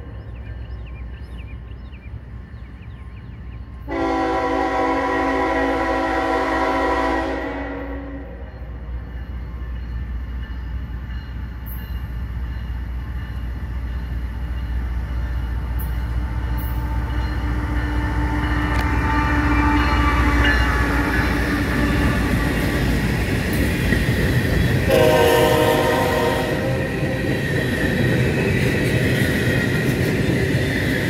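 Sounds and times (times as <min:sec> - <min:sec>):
diesel locomotive engine rumble: 0:00.0 - 0:31.0
rail noise: 0:00.0 - 0:31.0
loud steady horn tones: 0:03.9 - 0:08.4, 0:18.0 - 0:22.7, 0:24.8 - 0:27.4
freight cars rolling by: 0:12.5 - 0:31.0.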